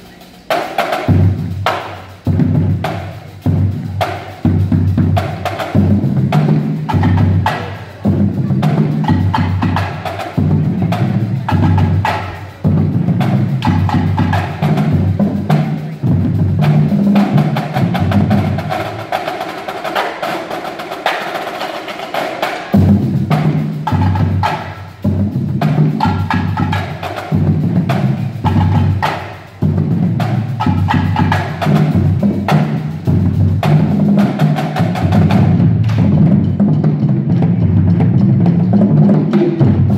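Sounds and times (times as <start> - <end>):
marching bass drums: 0.0 - 39.9
snare drums: 0.0 - 39.9
tenor drums: 0.0 - 39.9.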